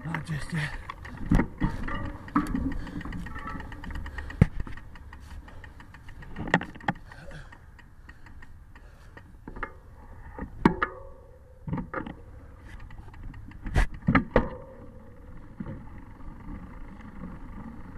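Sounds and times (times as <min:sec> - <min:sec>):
bike rattling: 0:00.0 - 0:17.9.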